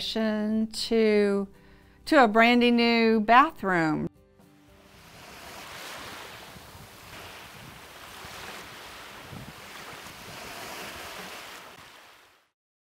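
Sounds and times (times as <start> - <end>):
surging rushing noise: 4.9 - 12.2.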